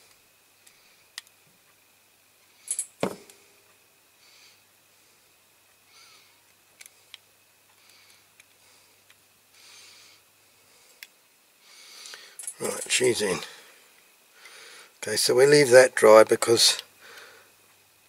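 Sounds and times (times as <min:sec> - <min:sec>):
metal parts clicking: 0:02.7 - 0:03.1, 0:12.4 - 0:13.0
soft breaths: 0:03.4 - 0:15.0, 0:16.9 - 0:17.8.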